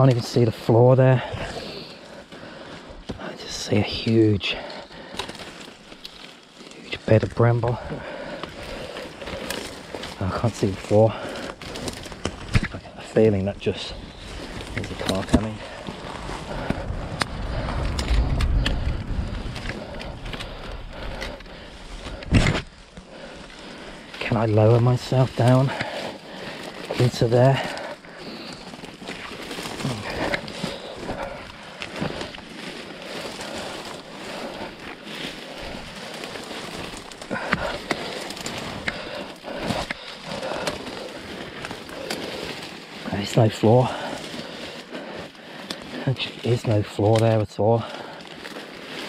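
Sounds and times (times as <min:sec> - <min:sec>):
twigs snapping: 0:04.0 - 0:49.0.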